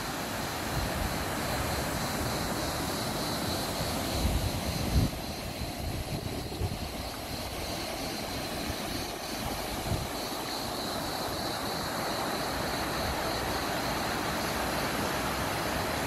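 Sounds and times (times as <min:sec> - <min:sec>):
constant hiss: 0:00.0 - 0:16.0
wind buffeting microphone: 0:04.2 - 0:07.7.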